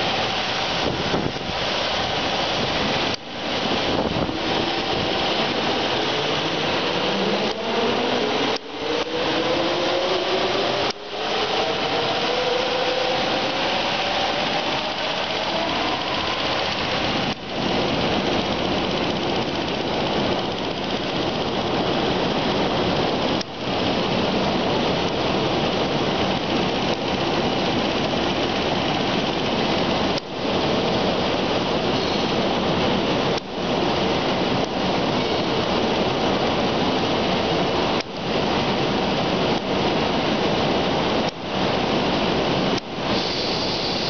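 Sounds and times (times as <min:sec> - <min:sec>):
faint rising whine: 0:00.0 - 0:23.4
plasma cutter hissing: 0:43.1 - 0:44.0.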